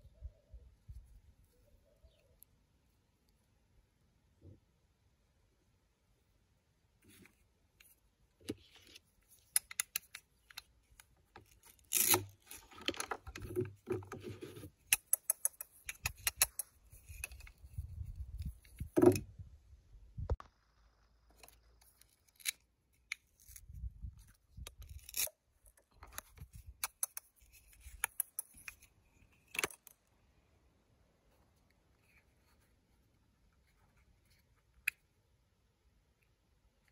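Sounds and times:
plastic toys clicking and tapping: 14.8 - 17.4, 26.1 - 28.8.

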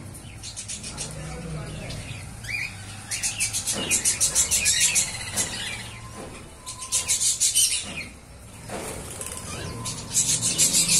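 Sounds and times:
birds chirping and chattering: 0.0 - 10.9
wings flapping: 8.8 - 9.6.

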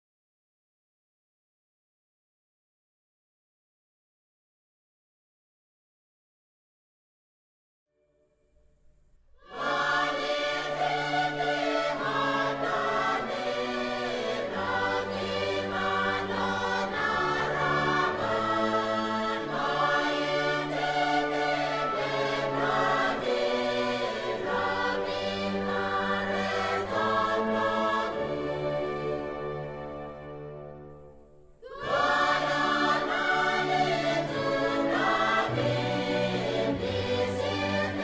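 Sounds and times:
slow choir-like chords: 9.4 - 38.0.

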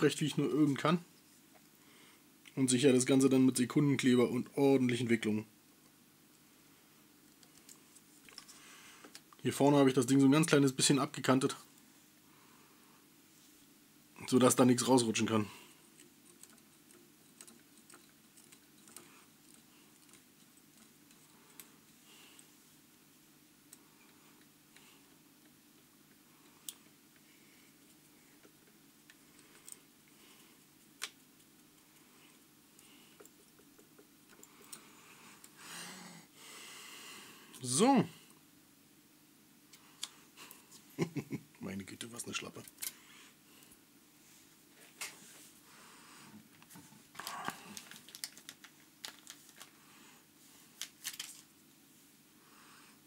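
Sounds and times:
small clicks and rustles: 7.2 - 9.4, 15.8 - 22.8, 23.6 - 35.6, 42.5 - 43.0, 46.3 - 49.8, 50.5 - 51.6.

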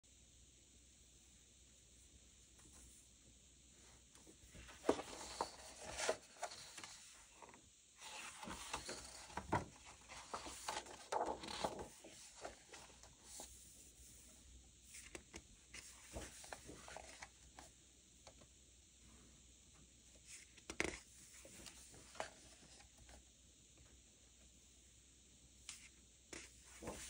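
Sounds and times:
paper rustling: 4.5 - 13.6, 15.0 - 17.7, 25.7 - 27.0
pages crinkling: 4.6 - 13.5, 25.7 - 27.0.

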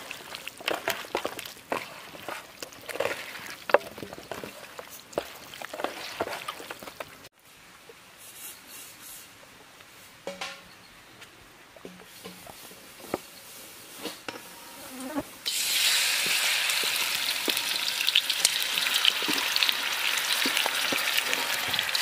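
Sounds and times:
hands kneading wet meat: 0.0 - 7.3
faint outdoor background: 0.0 - 22.0.

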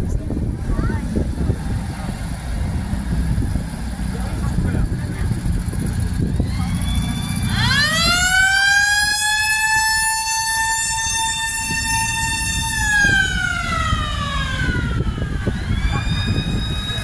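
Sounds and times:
military vehicle engines passing: 0.0 - 17.0
siren wailing: 6.2 - 17.0.

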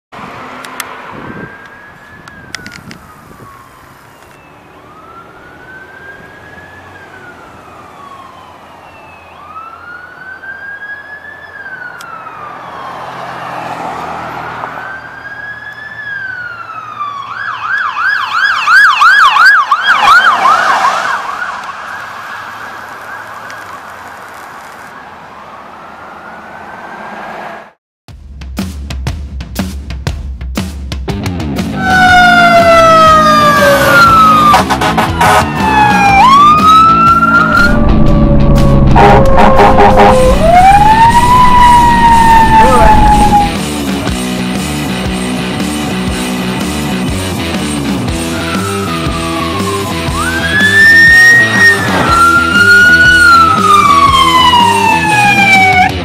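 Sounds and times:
road noise: 0.1 - 27.8, 31.0 - 56.0
ambulance siren: 0.7 - 24.2, 24.9 - 27.2, 31.8 - 44.2, 47.0 - 56.0.

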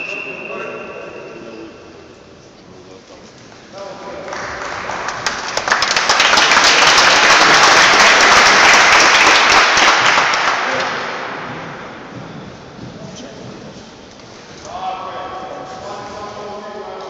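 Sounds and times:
audience applause: 4.2 - 11.5.

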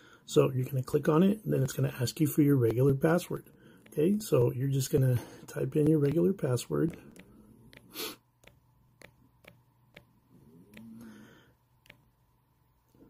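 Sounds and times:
soft hum with hiss: 0.0 - 13.0
touchscreen typing taps: 5.8 - 10.1, 11.8 - 12.2
breathy puff: 7.9 - 8.3.

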